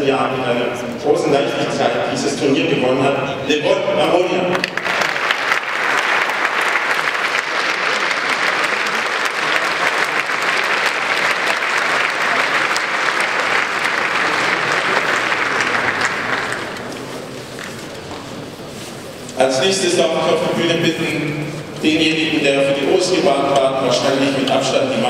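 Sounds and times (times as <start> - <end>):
large audience applauding: 4.6 - 17.7.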